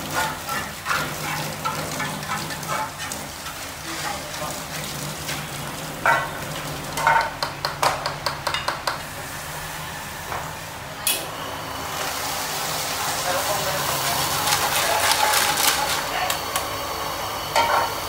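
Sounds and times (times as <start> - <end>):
metal utensils clinking on pots: 0.0 - 5.4, 17.6 - 17.9.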